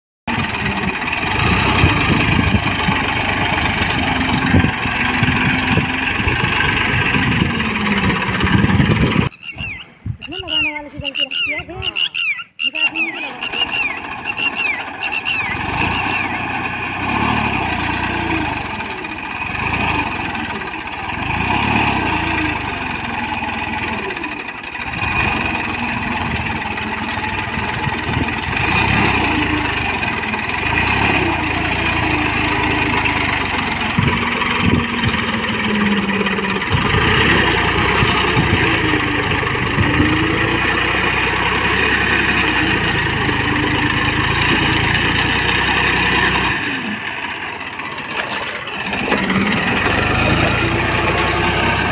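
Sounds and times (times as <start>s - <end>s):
rotavator churning mud: 0.3s - 9.3s, 13.3s - 51.9s
tractor diesel engine under load: 0.3s - 11.0s, 12.7s - 51.9s.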